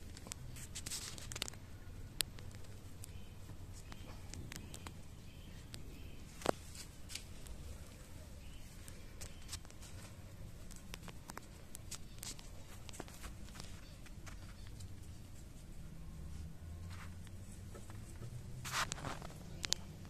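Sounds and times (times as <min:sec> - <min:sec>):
rustling in grass: 0:16.9 - 0:19.6
small clicks: 0:18.8 - 0:20.0.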